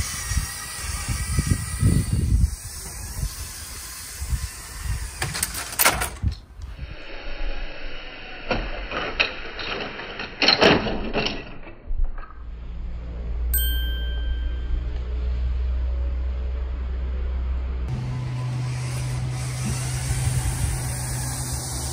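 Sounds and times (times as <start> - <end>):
bright ding: 13.6 - 15.2.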